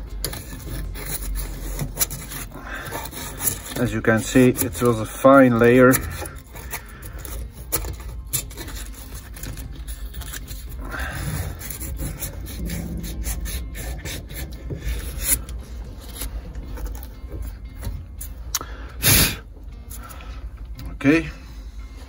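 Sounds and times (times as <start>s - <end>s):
sandpaper rubbing on metal: 0.2s - 16.3s.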